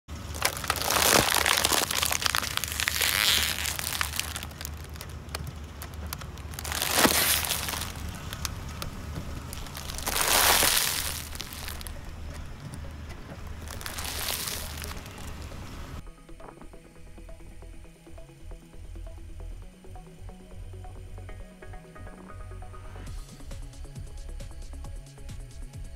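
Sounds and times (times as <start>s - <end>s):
plastic wrappers crinkling: 0.1s - 16.0s
tyre crushing snacks: 0.1s - 16.0s.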